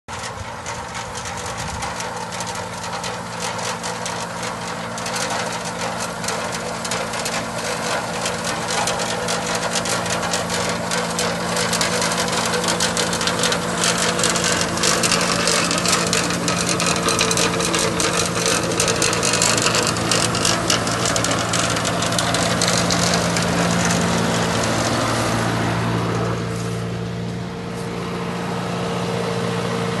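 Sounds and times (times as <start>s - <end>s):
plant debris clattering in machine: 0.1s - 26.8s
tractor engine running: 0.1s - 30.0s.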